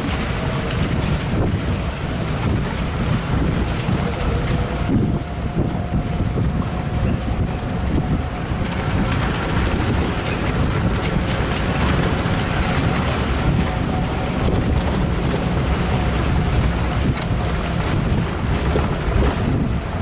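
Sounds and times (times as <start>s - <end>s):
vehicle engine and tyre rumble: 0.0s - 20.0s
wind buffeting microphone: 0.0s - 20.0s.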